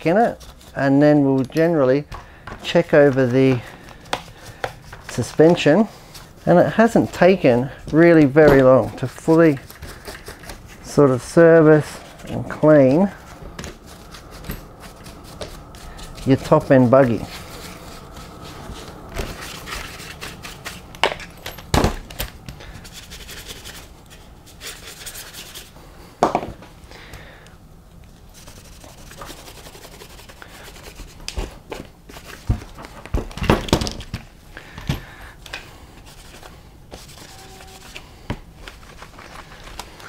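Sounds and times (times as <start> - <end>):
brush and rag scrubbing plastic: 2.6 - 21.4, 22.7 - 25.8, 28.2 - 32.4, 36.0 - 40.0.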